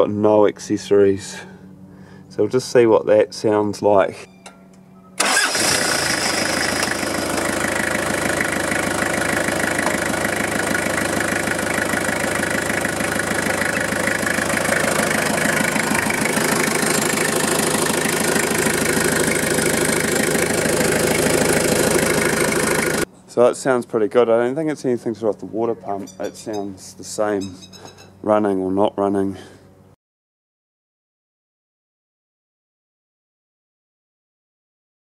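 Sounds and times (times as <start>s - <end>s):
diesel engine idling: 5.2s - 23.1s.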